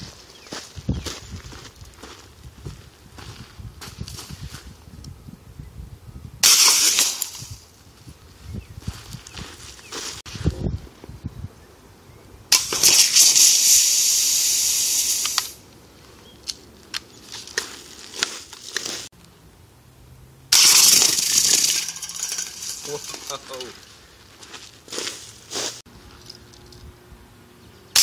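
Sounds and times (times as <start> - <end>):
spray can hissing: 12.5 - 15.6.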